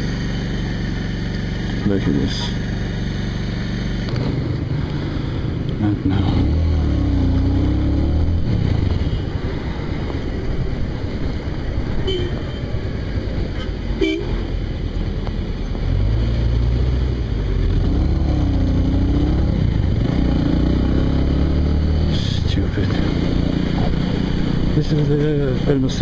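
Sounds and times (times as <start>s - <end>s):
motorcycle engine running: 0.0s - 26.0s
vehicle horn toots: 12.0s - 12.8s, 14.0s - 14.4s.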